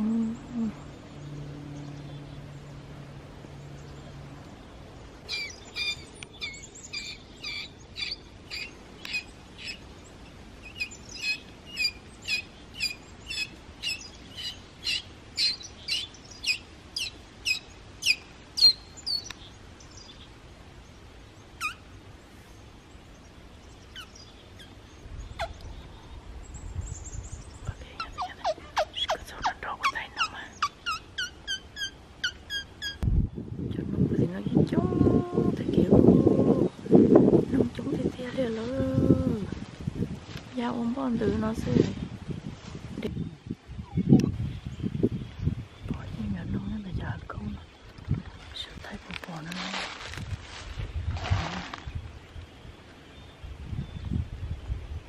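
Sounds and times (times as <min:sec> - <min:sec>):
animal chirping: 0:05.3 - 0:09.8, 0:10.6 - 0:19.2, 0:21.6 - 0:21.8, 0:25.3 - 0:25.6, 0:28.0 - 0:33.0.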